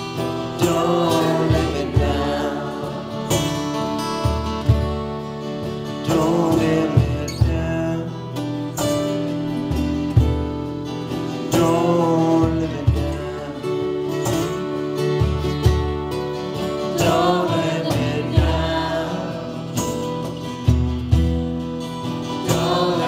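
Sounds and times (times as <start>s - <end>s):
acoustic guitars strummed: 0.0s - 23.0s
person singing a chant: 0.6s - 3.4s.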